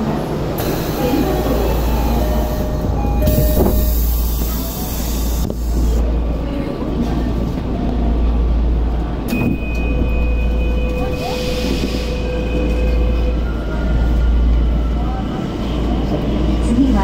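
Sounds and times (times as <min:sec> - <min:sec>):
train clunk: 0:00.0 - 0:06.1, 0:09.1 - 0:14.7.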